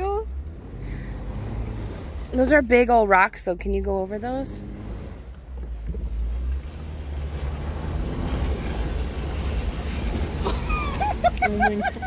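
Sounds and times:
engine and drivetrain rumble: 0.0 - 12.0.

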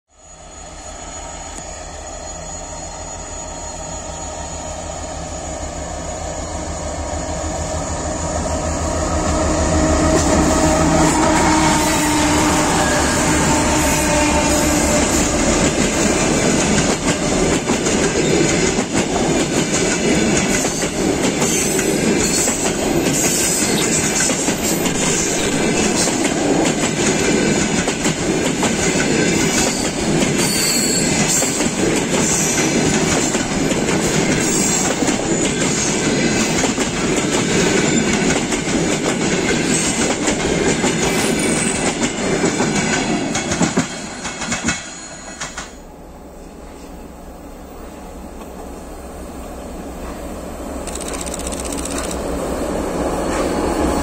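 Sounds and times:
train wheels clattering on rails: 9.0 - 45.9.

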